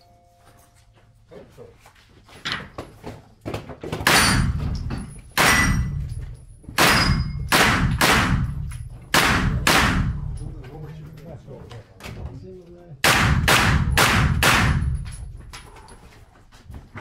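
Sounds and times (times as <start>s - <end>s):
rifle shots echoing indoors: 4.0s - 6.1s, 6.7s - 10.4s, 13.0s - 15.2s.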